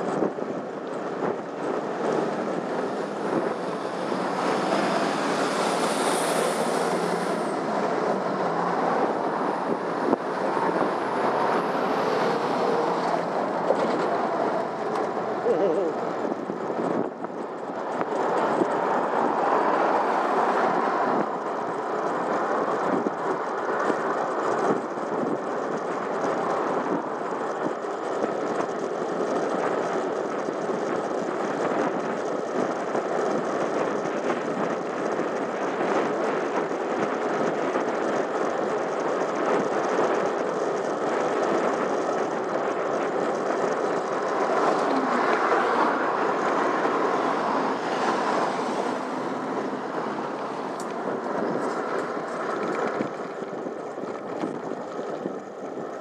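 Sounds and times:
road and wind noise: 0.0 - 56.0.

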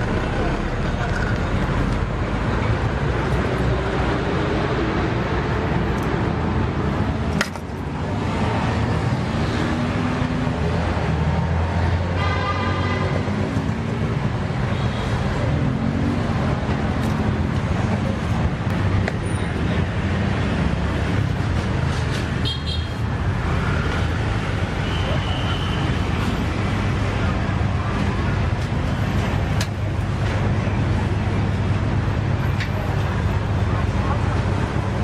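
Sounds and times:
street traffic: 0.0 - 35.0.

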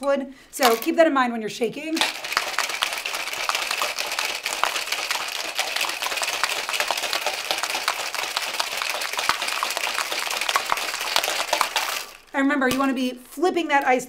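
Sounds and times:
ice rattling in metal shaker: 2.0 - 12.8.

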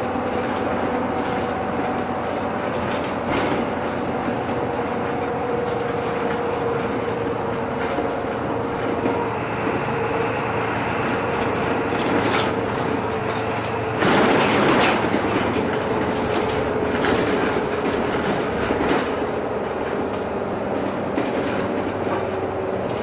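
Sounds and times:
bus engine and road noise: 0.0 - 23.0
steady whine: 5.8 - 16.4
rush of noise: 8.7 - 15.8
rattles: 10.7 - 20.2.

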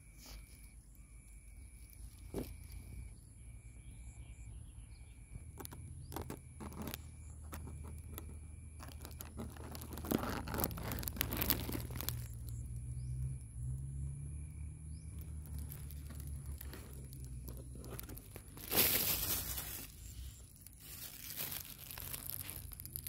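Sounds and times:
plastic bag rustling and crinkling: 5.6 - 12.6, 15.2 - 23.0.

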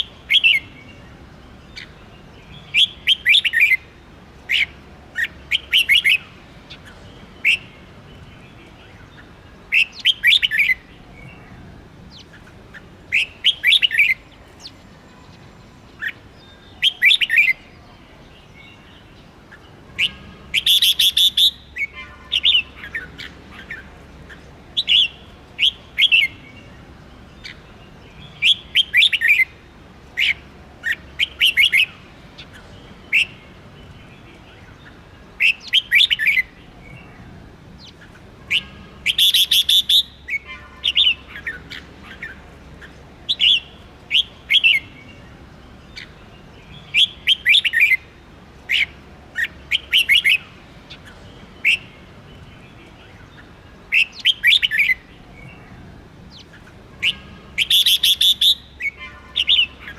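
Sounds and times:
bird singing whistled phrases: 2.6 - 3.8, 20.0 - 23.1, 28.3 - 29.5, 35.4 - 36.5, 38.5 - 41.6, 43.3 - 44.9, 46.8 - 48.0, 53.9 - 55.6, 57.0 - 59.9.

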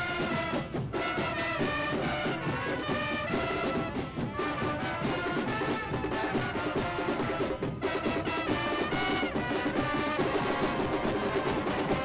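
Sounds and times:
brass band playing: 0.0 - 12.0
snare drums beat: 0.0 - 12.0.

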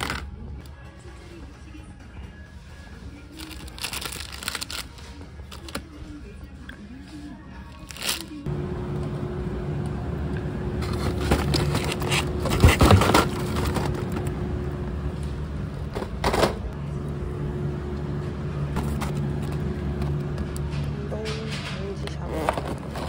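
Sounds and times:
mechanical hum droning: 0.0 - 23.0.

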